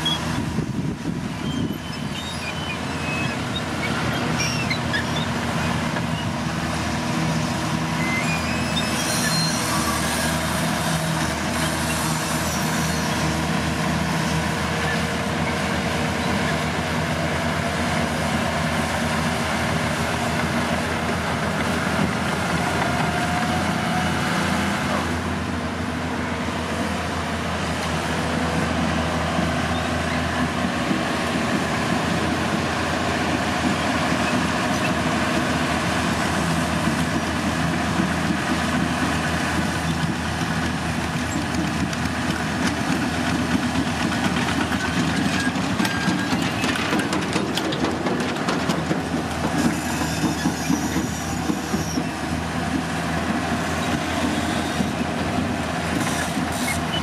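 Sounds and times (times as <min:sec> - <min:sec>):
bulldozer diesel engine running: 0:00.0 - 0:57.0
machinery clatter: 0:36.8 - 0:57.0.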